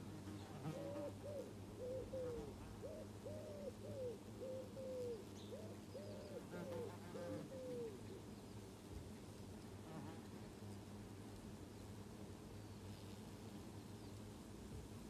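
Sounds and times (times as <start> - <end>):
honeybees humming: 0.0 - 8.4
pigeon cooing: 0.2 - 8.1.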